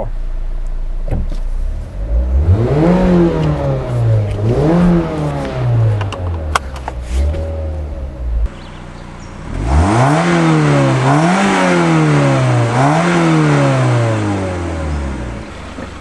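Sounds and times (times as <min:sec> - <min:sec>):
car engine idling and revving: 0:00.0 - 0:16.0.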